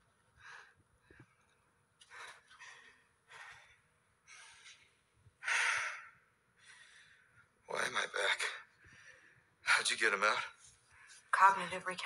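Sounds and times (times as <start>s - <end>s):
man breathing heavily: 2.0s - 7.4s.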